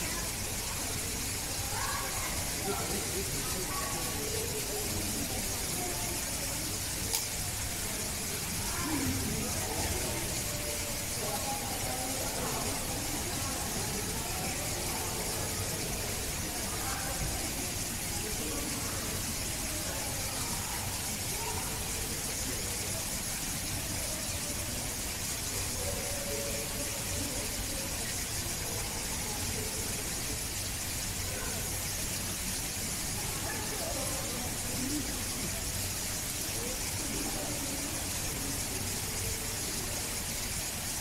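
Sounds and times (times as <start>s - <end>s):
faint distant voices: 0.0s - 41.0s
steady background hiss: 0.0s - 41.0s.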